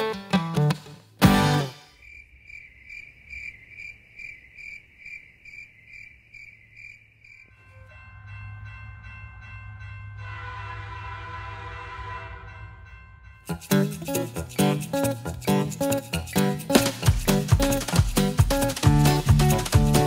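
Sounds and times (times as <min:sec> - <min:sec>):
crickets chirping: 0:01.8 - 0:08.8
train horn chord: 0:07.5 - 0:09.0, 0:09.8 - 0:13.0
low rumble of approaching train: 0:07.5 - 0:13.6.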